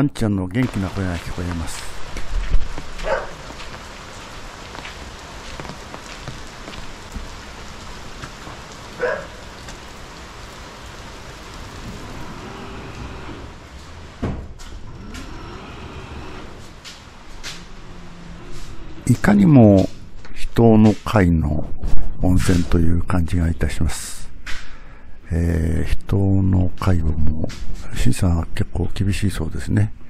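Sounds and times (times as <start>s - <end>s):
rain hissing: 0.5s - 21.2s
dog barking: 3.0s - 3.4s, 9.0s - 9.4s.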